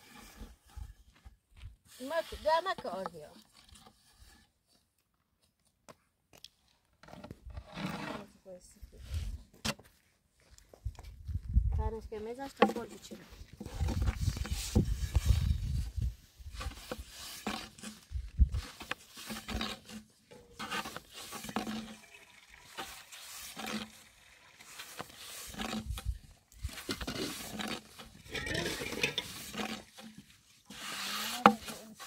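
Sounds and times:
rolling pin rubbing on wooden board: 0:30.7 - 0:32.0.

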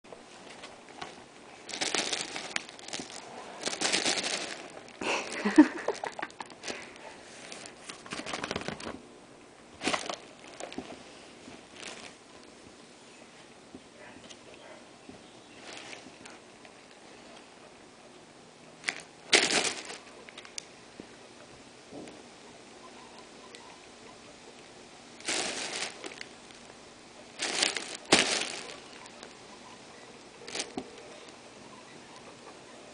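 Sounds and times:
paper and plastic bag crinkling: 0:00.4 - 0:09.0, 0:09.8 - 0:12.3, 0:15.6 - 0:17.0, 0:18.8 - 0:20.6, 0:25.2 - 0:29.4, 0:30.4 - 0:31.4.

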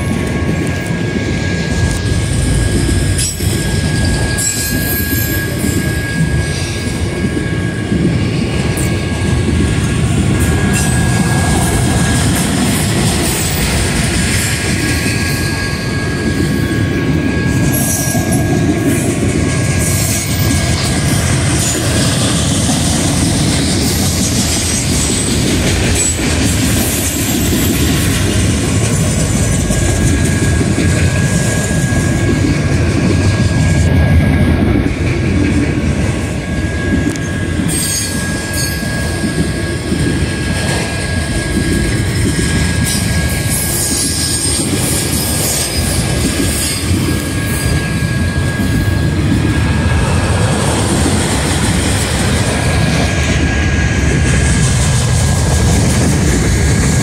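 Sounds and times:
train wheels rumbling on rail: 0:00.0 - 0:57.0
high-pitched wheel squeal: 0:01.2 - 0:07.8, 0:36.5 - 0:39.8.

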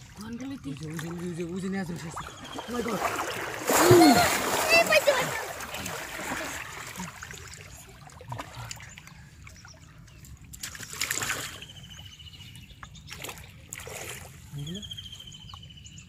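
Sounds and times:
water splash: 0:00.0 - 0:08.6, 0:10.5 - 0:11.6
river water sloshing: 0:00.0 - 0:15.4.

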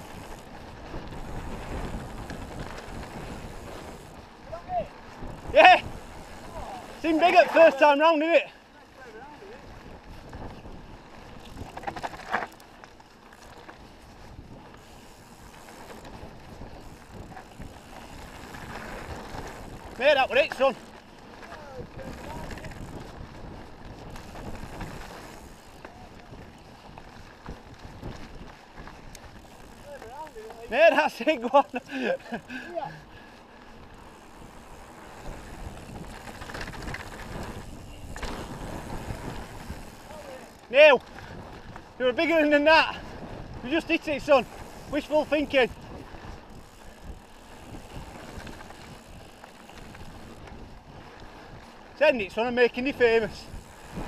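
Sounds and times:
wind rushing over microphone: 0:00.0 - 0:07.9, 0:09.3 - 0:12.2, 0:13.8 - 0:30.8, 0:33.8 - 0:54.0
bike tyre roar on gravel: 0:00.0 - 0:54.0
bike frame rattle: 0:09.0 - 0:32.9, 0:33.6 - 0:51.0.

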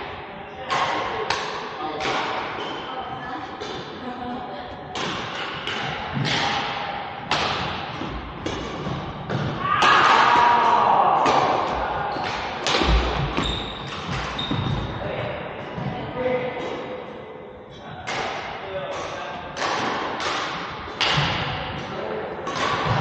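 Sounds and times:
rackets hitting shuttlecock: 0:00.7 - 0:02.8, 0:03.6 - 0:04.0, 0:04.9 - 0:15.0, 0:18.0 - 0:23.0.

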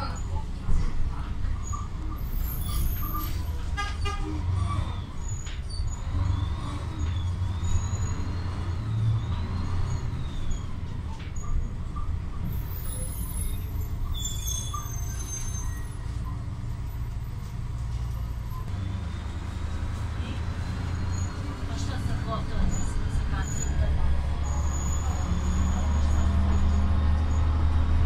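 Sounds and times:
bus engine rumble: 0:00.0 - 0:28.0
brief high squeals: 0:01.6 - 0:04.1, 0:12.5 - 0:16.1, 0:24.4 - 0:26.9.

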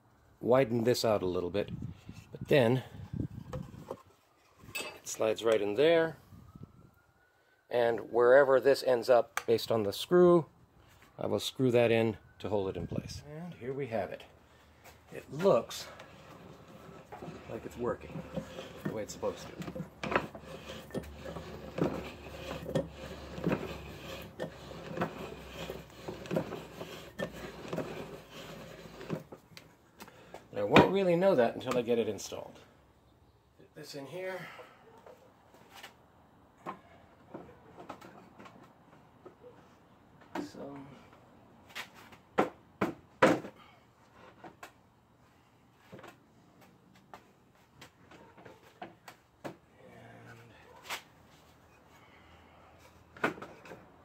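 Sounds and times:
vise screw knocking and rubbing: 0:16.0 - 0:29.4.

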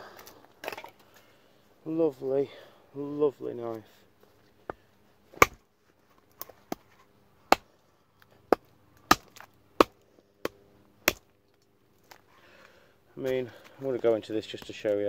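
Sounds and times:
knife chopping wood: 0:05.4 - 0:05.6, 0:07.5 - 0:07.7, 0:08.5 - 0:11.3.

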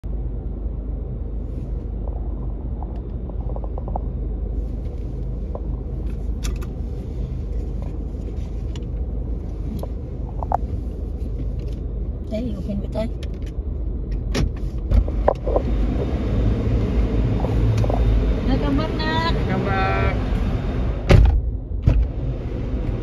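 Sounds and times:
low rumble of vehicle traffic: 0:00.0 - 0:23.0
ventilation noise: 0:00.0 - 0:23.0.

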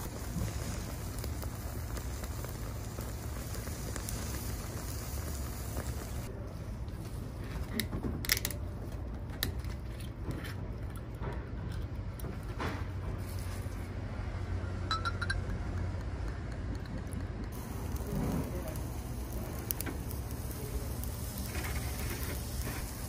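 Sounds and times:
steady low hum: 0:00.0 - 0:07.9, 0:08.6 - 0:23.0
shot glass clinking: 0:14.9 - 0:15.6.

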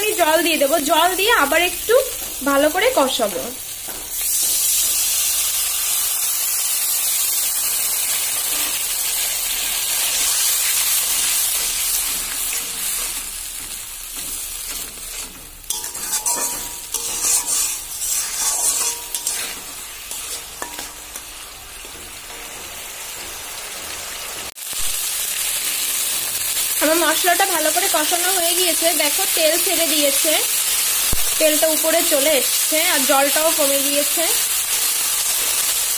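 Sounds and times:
spice paste sizzling in oil: 0:00.0 - 0:35.9
metal spatula scraping pan: 0:10.3 - 0:23.4.

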